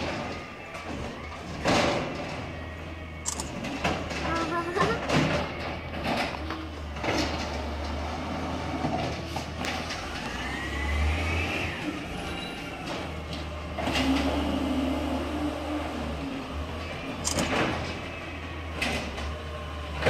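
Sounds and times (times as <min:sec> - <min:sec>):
clunks: 0:00.0 - 0:10.4, 0:16.7 - 0:20.0
garbage truck engine running: 0:00.0 - 0:20.0.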